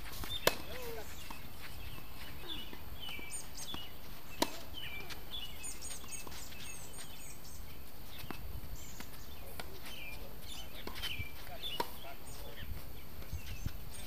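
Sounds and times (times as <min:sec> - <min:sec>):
racket hitting tennis ball: 0:00.0 - 0:01.4, 0:02.0 - 0:05.3, 0:10.7 - 0:12.0
birds chirping: 0:00.0 - 0:14.0
outdoor background hush: 0:00.0 - 0:14.0.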